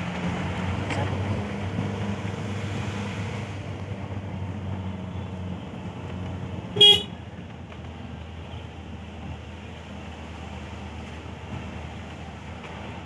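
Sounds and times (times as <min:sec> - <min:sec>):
vehicle engine and road noise: 0:00.0 - 0:13.0
car horn beep: 0:06.8 - 0:07.2.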